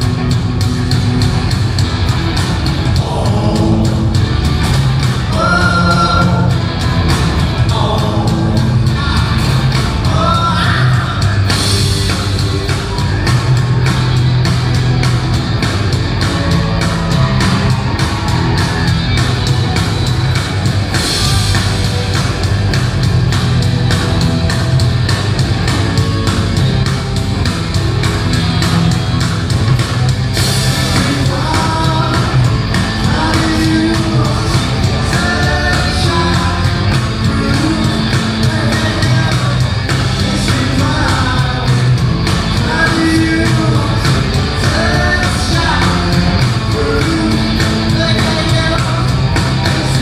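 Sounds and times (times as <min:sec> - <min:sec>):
drums beating: 0:00.0 - 0:50.0
rock band playing: 0:00.0 - 0:50.0
person singing: 0:02.9 - 0:04.2, 0:05.3 - 0:06.6, 0:07.6 - 0:11.6, 0:30.8 - 0:50.0.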